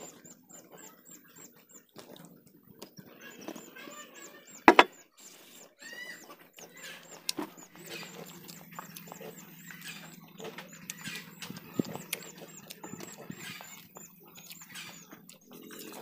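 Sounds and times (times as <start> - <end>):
knife chopping on wooden table: 4.7 - 4.9.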